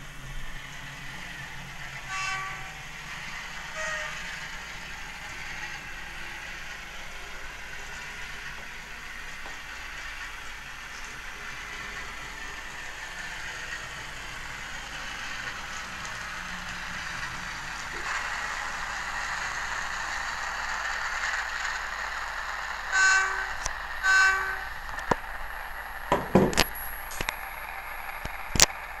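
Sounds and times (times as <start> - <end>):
model locomotive engine sound: 0.0 - 29.0
short horn blasts: 2.1 - 2.8, 3.7 - 4.3, 23.0 - 24.7
sharp clicks and knocks: 26.1 - 27.4.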